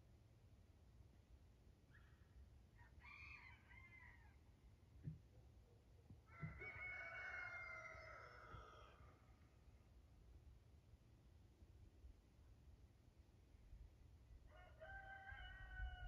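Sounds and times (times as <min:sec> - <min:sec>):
rooster crowing faintly: 0:06.2 - 0:09.3, 0:14.5 - 0:16.0.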